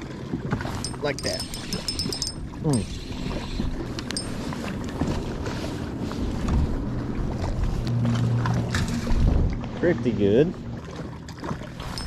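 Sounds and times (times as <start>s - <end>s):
boat on open water: 0.0s - 12.0s
wind rumbling on microphone: 1.8s - 9.8s
low steady hum: 4.0s - 5.0s.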